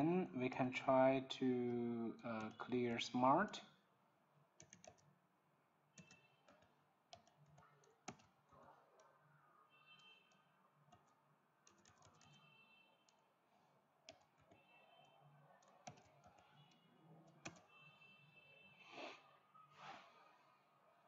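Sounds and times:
keyboard typing: 1.6s - 3.6s, 4.6s - 5.2s, 6.0s - 13.3s, 14.0s - 17.8s
person breathing: 18.8s - 20.7s.

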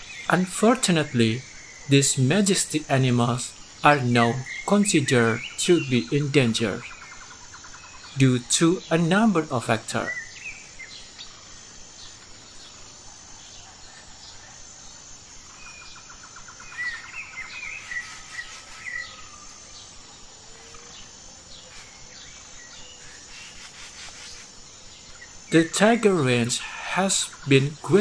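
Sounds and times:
birds chirping: 0.0s - 28.0s
high insect drone: 0.0s - 28.0s.

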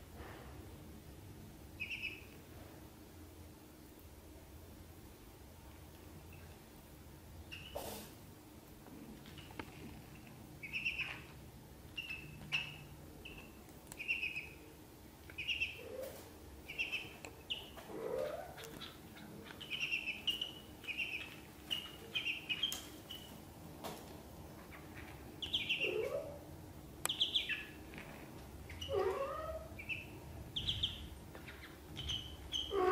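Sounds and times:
ducklings peeping: 1.8s - 2.4s, 7.5s - 7.8s, 9.2s - 14.6s, 15.3s - 23.5s, 24.6s - 26.5s, 27.1s - 32.9s.

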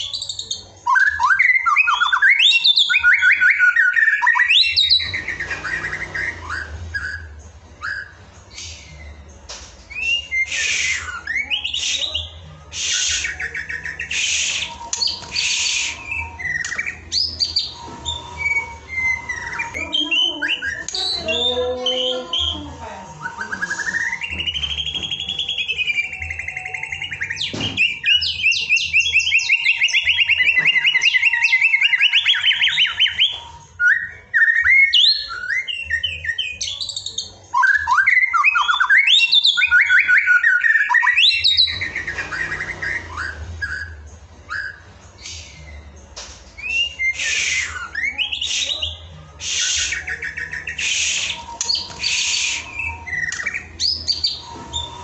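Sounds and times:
songbird singing: 0.0s - 55.0s.

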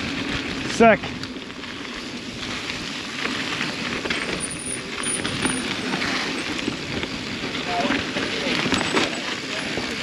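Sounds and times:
bike clicking and rattling: 0.0s - 10.0s
bike tyres on dirt trail: 0.0s - 10.0s.

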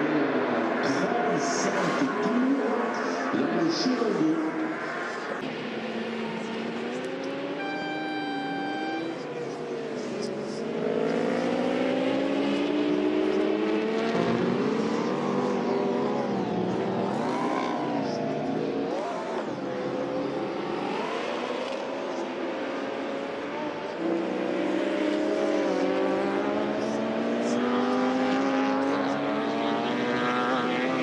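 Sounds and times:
racing motorcycle engines revving: 0.0s - 31.0s.

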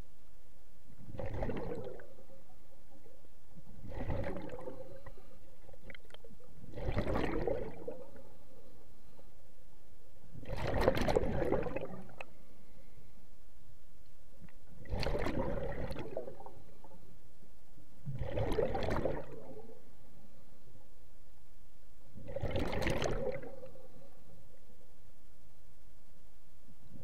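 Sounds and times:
faint steady hum: 0.0s - 27.0s
underwater exhaled bubbles rushing: 1.0s - 2.5s, 3.8s - 6.0s, 6.6s - 8.5s, 10.4s - 12.2s, 14.8s - 16.7s, 18.1s - 19.8s, 22.2s - 23.8s.

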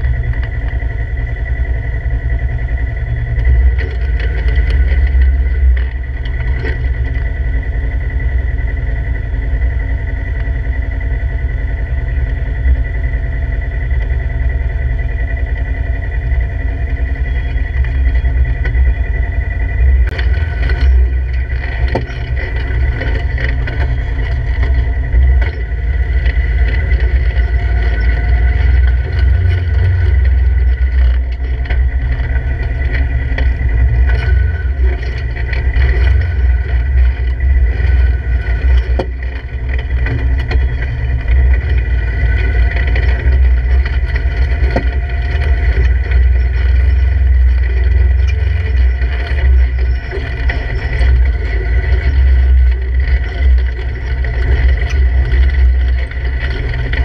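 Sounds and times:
rocks knocking and scraping: 0.0s - 1.6s, 2.8s - 7.6s, 16.8s - 57.0s
engine running at low speed: 0.0s - 57.0s.

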